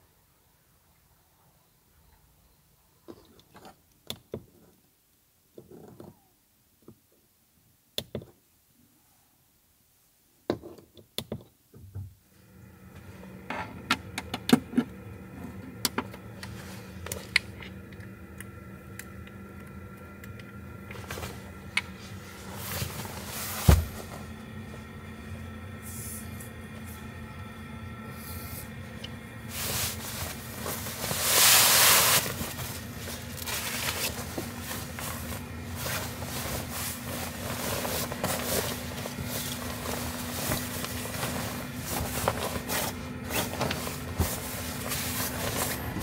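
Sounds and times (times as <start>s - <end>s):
electrical hum: 12.0s - 46.0s
heavy thump: 23.6s - 24.2s
handling clicks and rustles: 28.9s - 46.0s.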